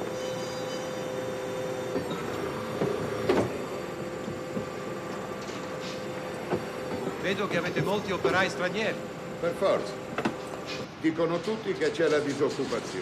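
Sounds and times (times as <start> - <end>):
machinery humming: 0.0 - 13.0
machinery clanks: 9.6 - 13.0.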